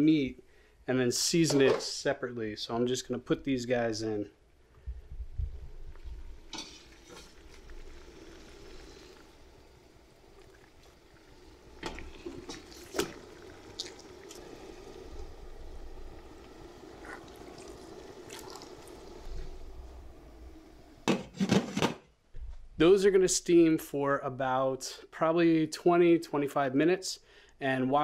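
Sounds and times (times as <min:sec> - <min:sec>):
water bubbling in pot: 0:05.5 - 0:21.1.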